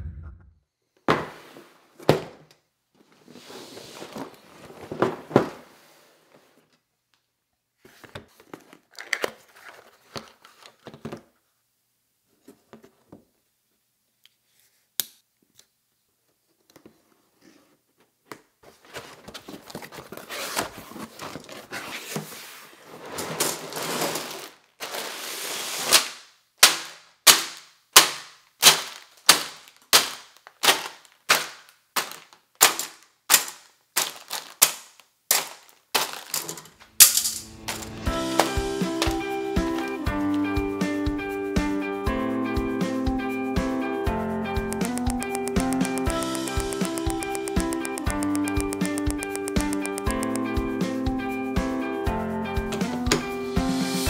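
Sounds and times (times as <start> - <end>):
cardboard and plastic rustling: 3.0 - 6.7, 7.8 - 11.4, 18.6 - 26.2, 28.6 - 36.9
bags thunking on table: 28.0 - 38.6
handling clicks: 44.7 - 50.5.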